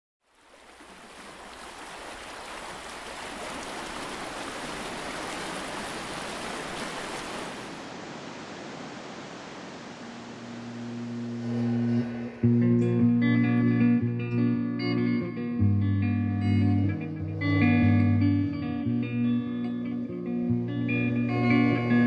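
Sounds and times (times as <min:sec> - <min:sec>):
rushing water: 0:00.2 - 0:12.7.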